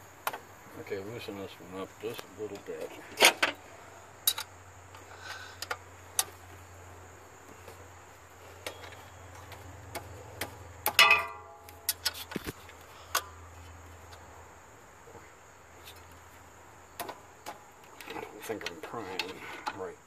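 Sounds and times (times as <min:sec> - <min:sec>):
metal clank: 0:10.4 - 0:12.2.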